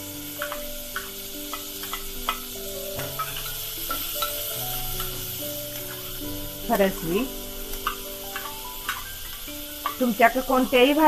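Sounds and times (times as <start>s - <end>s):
vegetables sizzling in oil: 0.0s - 11.0s
spoon knocking metal pot: 3.0s - 4.4s, 7.7s - 11.0s.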